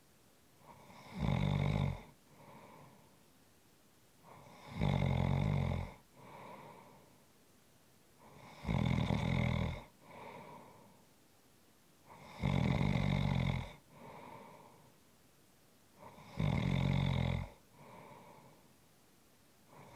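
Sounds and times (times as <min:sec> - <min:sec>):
person snoring: 0:00.6 - 0:03.0, 0:04.3 - 0:07.0, 0:08.2 - 0:10.9, 0:12.1 - 0:14.8, 0:16.0 - 0:18.6
soft breath: 0:02.1 - 0:03.4, 0:06.0 - 0:07.4, 0:09.9 - 0:11.2, 0:13.8 - 0:15.1, 0:17.5 - 0:18.9, 0:19.6 - 0:19.9.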